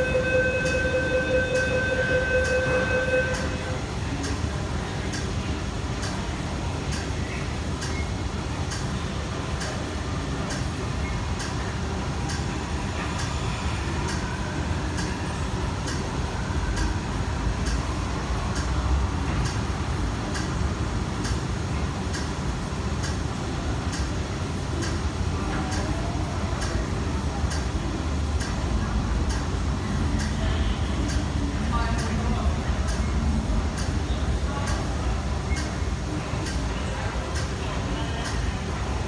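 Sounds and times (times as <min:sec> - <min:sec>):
train low rumble: 0:00.0 - 0:39.0.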